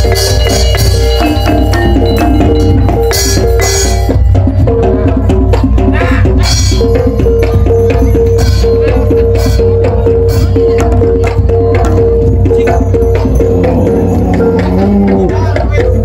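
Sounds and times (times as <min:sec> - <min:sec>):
drum beats: 0:00.0 - 0:16.0
metallophone keys struck with mallets: 0:00.0 - 0:16.0
low gong: 0:12.8 - 0:15.6.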